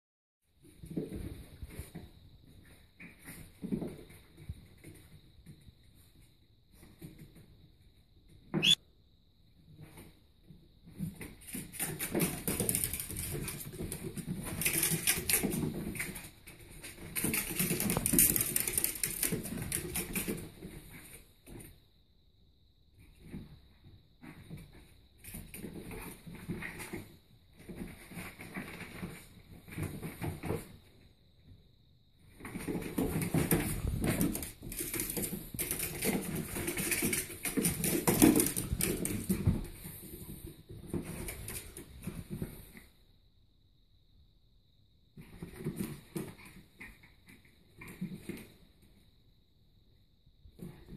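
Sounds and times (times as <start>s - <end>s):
pet claws skittering on wooden floor: 11.4s - 20.6s, 32.5s - 40.1s.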